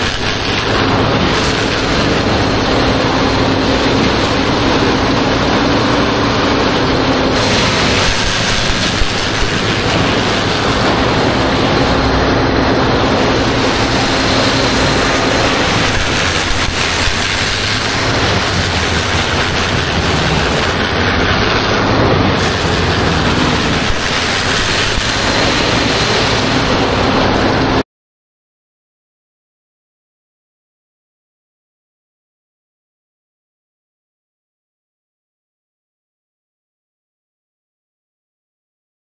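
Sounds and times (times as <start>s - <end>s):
wood chips raining onto pile: 0.0s - 27.7s
wood chipper running: 0.0s - 27.8s.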